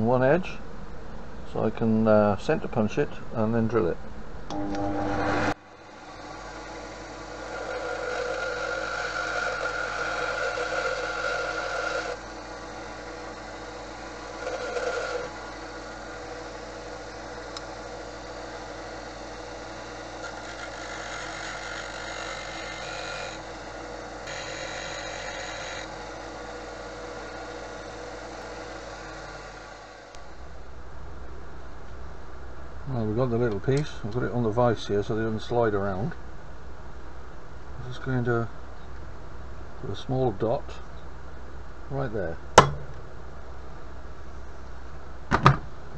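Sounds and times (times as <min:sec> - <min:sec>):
bench grinder running: 0:04.5 - 0:30.2
steel pin grinding on wheel: 0:14.4 - 0:15.3.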